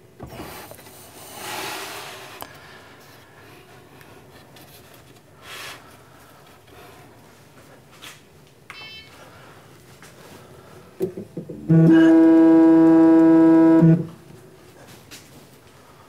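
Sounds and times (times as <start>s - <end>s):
stepper motor whining: 11.7s - 14.1s.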